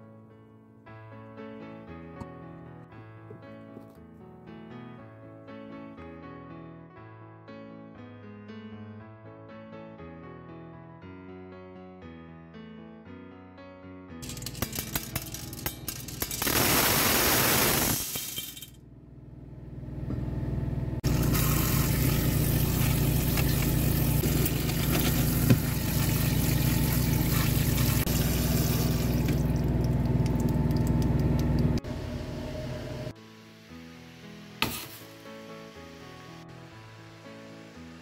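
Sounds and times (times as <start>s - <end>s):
tap water running into bowl: 21.0s - 31.8s
background music: 33.1s - 38.0s.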